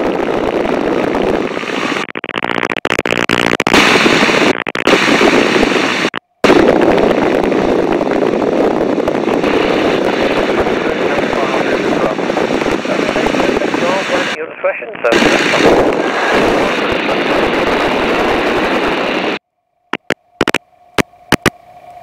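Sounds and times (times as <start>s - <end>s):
wind buffeting microphone: 0.0s - 2.1s, 3.7s - 14.4s, 15.0s - 19.4s
biplane engine and slipstream rush: 0.0s - 22.0s.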